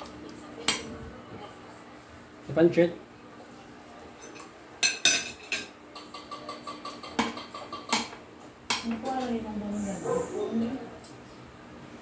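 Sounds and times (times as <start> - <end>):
cutlery clinking against glass dishes: 4.2 - 8.2.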